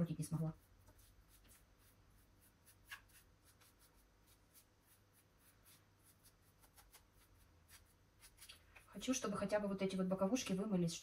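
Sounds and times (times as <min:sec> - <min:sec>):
small brush scrubbing metal: 0:00.1 - 0:08.8.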